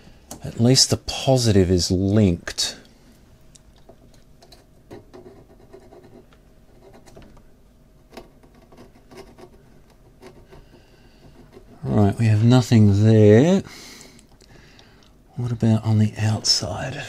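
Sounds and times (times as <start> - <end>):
test probes scratching and clicking: 3.5 - 7.4, 8.1 - 12.1.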